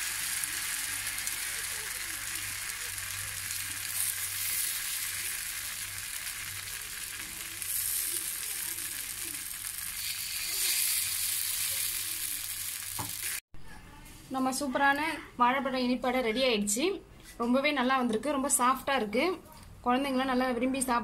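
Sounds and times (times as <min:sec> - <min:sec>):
pancakes sizzling in oil: 0:00.0 - 0:13.4.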